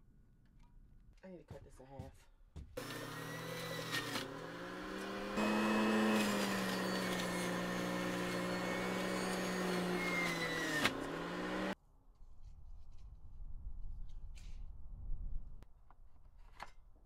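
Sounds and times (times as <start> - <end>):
juicer motor humming: 2.8 - 11.8.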